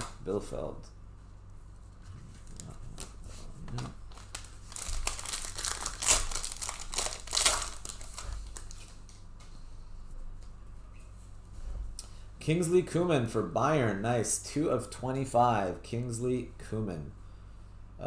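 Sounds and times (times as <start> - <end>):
plastic wrapping crinkling and tearing: 2.5 - 9.2.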